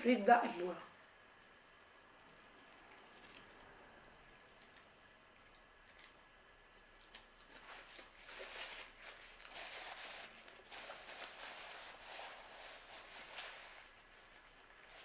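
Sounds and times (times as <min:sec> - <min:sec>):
person chewing food: 0:01.0 - 0:09.7
paper napkin crinkling: 0:07.2 - 0:15.0.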